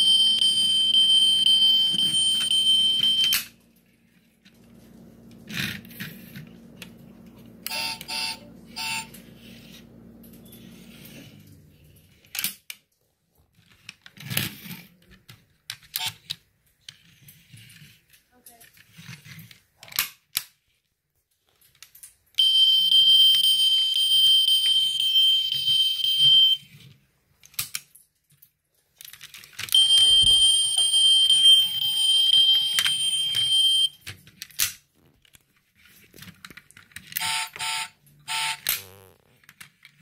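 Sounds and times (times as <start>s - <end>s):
buzzy electronic toy tone: 7.7s - 9.1s, 37.2s - 39.4s
plastic clicks from toy cars: 12.2s - 17.0s, 18.1s - 20.8s, 21.4s - 22.2s, 27.4s - 29.8s, 34.0s - 37.7s.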